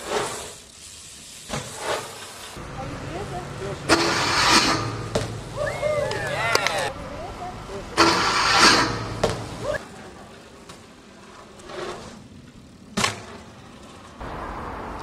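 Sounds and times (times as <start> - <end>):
steady outdoor hiss: 0.0 - 15.0
bike clacking on concrete: 3.9 - 5.4, 8.0 - 9.7.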